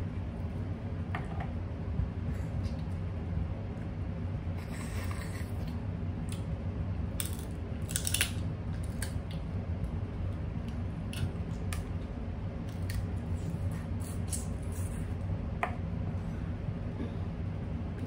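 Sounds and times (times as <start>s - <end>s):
steady low hum: 0.0s - 18.0s
crab shell cracking: 7.2s - 9.4s.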